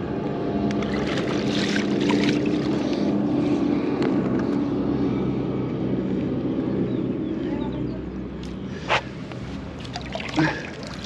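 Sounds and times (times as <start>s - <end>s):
low motor drone: 0.0s - 11.0s
wind: 0.0s - 11.0s
fish splashing in a net: 0.8s - 3.0s, 9.8s - 11.0s.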